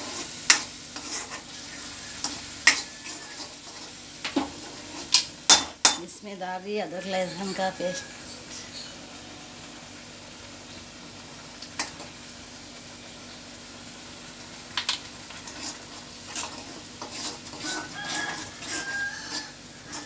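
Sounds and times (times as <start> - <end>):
spatula scraping pan: 0.0 - 6.0, 15.4 - 20.0
onions frying with hiss: 0.0 - 20.0.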